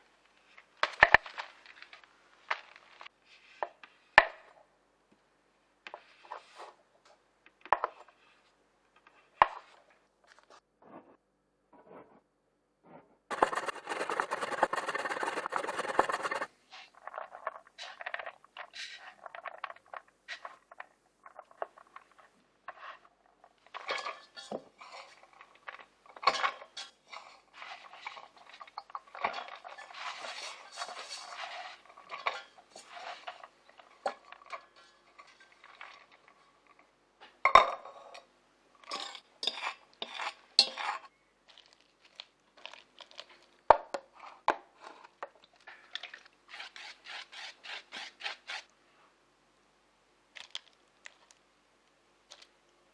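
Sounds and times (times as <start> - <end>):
dense rasping noise: 13.3 - 16.5
metal pots and spoon clinking: 23.8 - 25.4, 28.0 - 36.2, 38.8 - 41.2.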